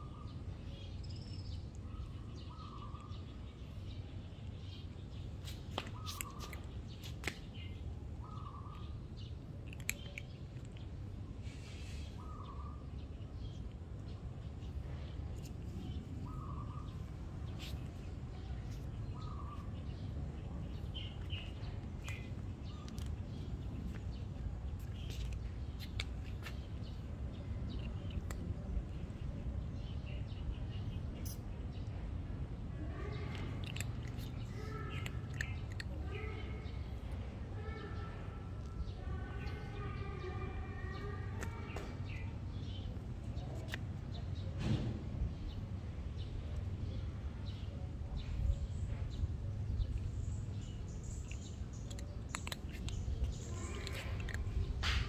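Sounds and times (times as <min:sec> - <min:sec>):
small birds chirping: 0:00.0 - 0:55.0
low outdoor rumble: 0:06.6 - 0:55.0
cat crunching dry kibble: 0:09.3 - 0:11.2, 0:33.0 - 0:37.0, 0:49.7 - 0:55.0.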